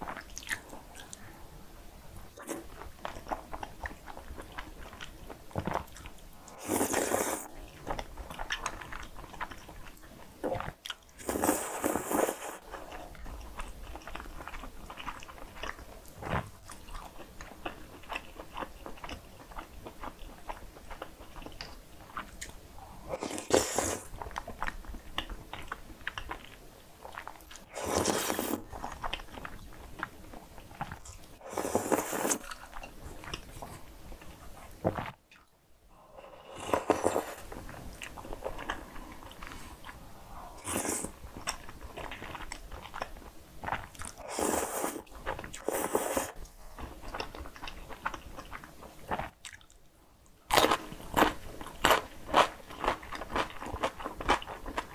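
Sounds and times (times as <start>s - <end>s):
slurping noodles: 6.5s - 7.5s, 11.2s - 12.6s, 23.1s - 24.1s, 27.7s - 28.8s, 31.4s - 32.6s, 40.4s - 41.2s, 44.2s - 45.0s, 45.6s - 46.4s.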